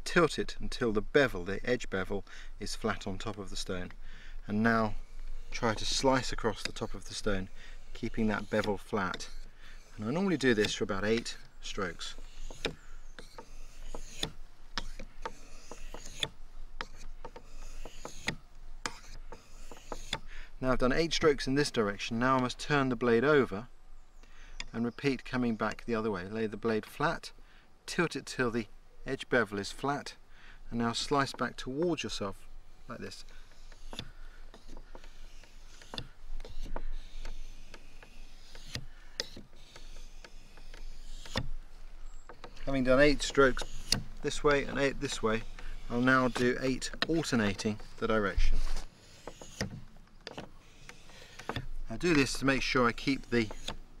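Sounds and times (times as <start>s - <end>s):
knife scraping on whetstone: 4.5s - 20.3s, 30.9s - 53.8s.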